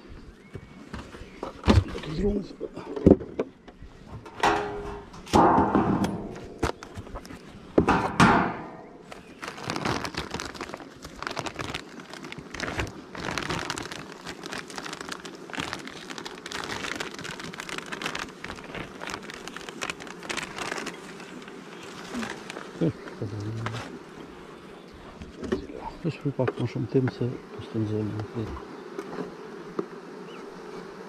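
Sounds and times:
plastic sheet crinkling: 9.0 - 22.8.

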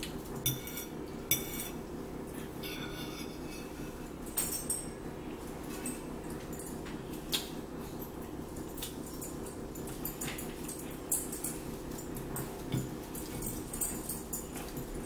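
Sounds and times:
low background hum: 0.0 - 15.0
fork scraping on plate: 0.5 - 1.8, 2.6 - 4.0.

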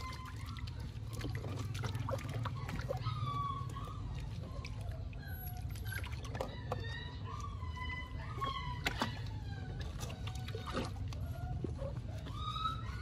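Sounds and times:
wet rubbing and splashing: 0.0 - 6.9
high animal cries: 2.0 - 13.0.

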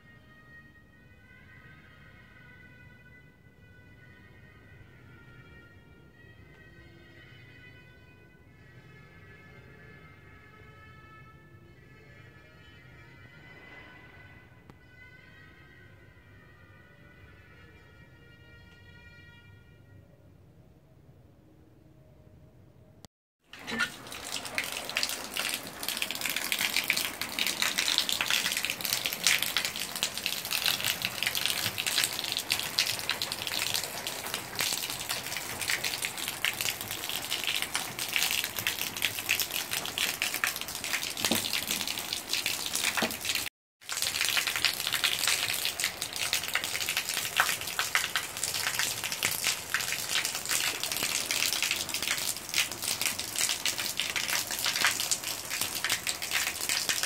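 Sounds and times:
rain pattering on hard surfaces: 23.5 - 57.0.

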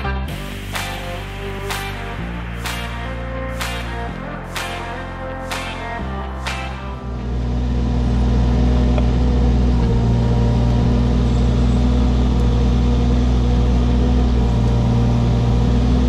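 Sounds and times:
diesel engine droning: 0.0 - 16.0.

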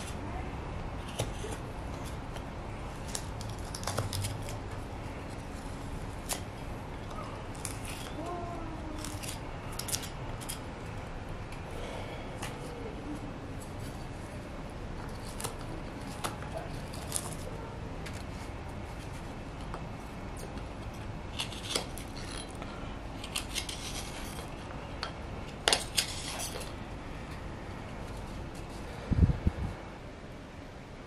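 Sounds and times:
knife scraping wood: 0.8 - 4.6, 5.2 - 8.2, 9.0 - 10.6, 15.0 - 26.8.

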